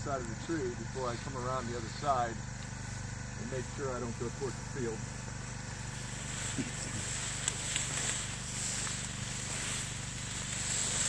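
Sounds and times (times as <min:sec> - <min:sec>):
sprayer pump engine humming: 0:00.0 - 0:11.0
hiss of spray: 0:06.0 - 0:11.0.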